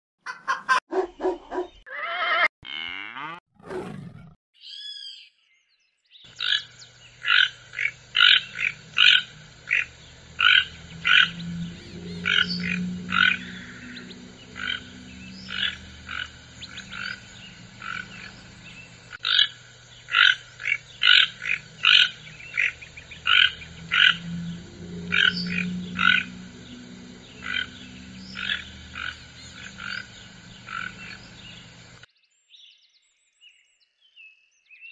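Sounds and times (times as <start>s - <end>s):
toucan hoarse calls: 0.2s - 3.4s, 6.3s - 32.0s
electronic sweeping tones: 8.2s - 19.5s, 20.2s - 32.1s.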